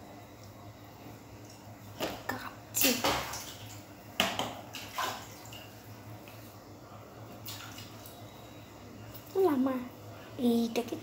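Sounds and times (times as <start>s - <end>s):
water splashing: 2.8s - 5.8s.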